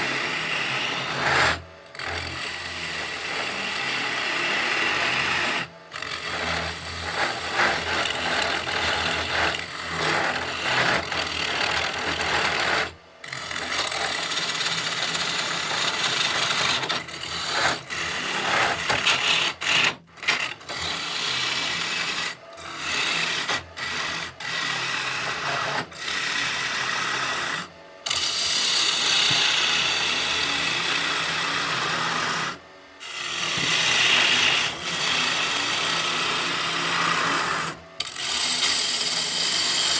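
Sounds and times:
lathe gouge scraping wood: 0.0 - 39.9.

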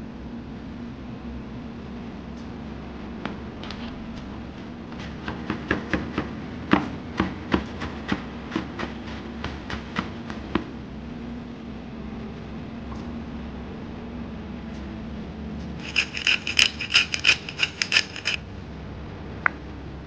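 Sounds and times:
knife chopping on wooden board: 5.0 - 10.7.

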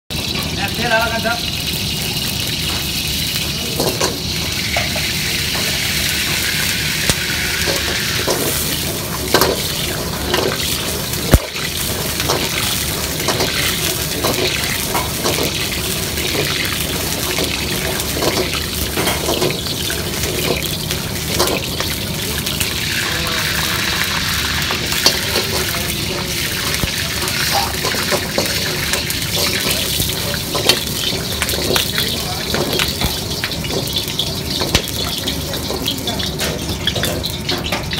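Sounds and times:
gas burner roaring: 0.1 - 37.9
liquid hissing in pan: 1.6 - 35.4.

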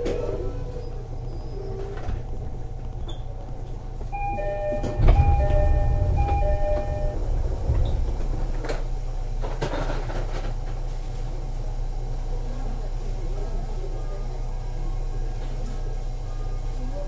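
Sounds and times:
sliding doors working: 0.0 - 10.8
train car low hum: 0.0 - 17.0
two-note door chime: 4.2 - 7.3
loud thud: 4.8 - 9.6.

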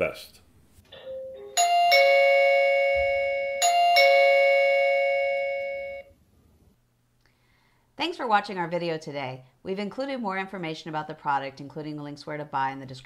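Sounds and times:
two-note doorbell chime: 1.0 - 6.1.

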